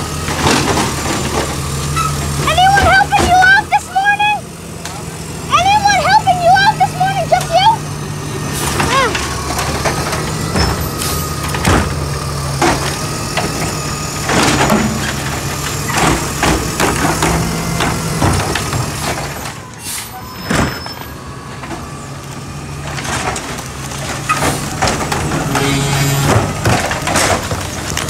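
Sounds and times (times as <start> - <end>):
garbage truck diesel engine running: 0.0 - 28.0
hydraulic arm clanking and knocking: 8.6 - 19.7, 22.8 - 28.0.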